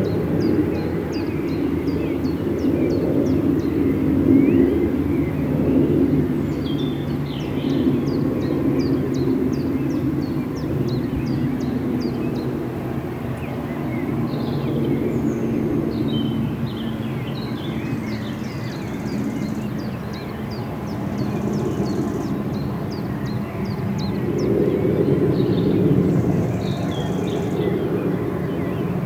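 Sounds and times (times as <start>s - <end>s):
distant engine drone: 0.0s - 29.0s
songbirds calling: 0.0s - 29.0s.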